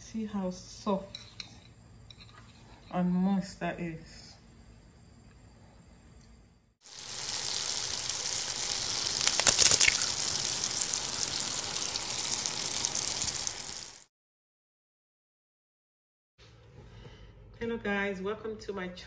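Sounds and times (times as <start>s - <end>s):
steam and sizzle hiss: 6.8s - 14.1s.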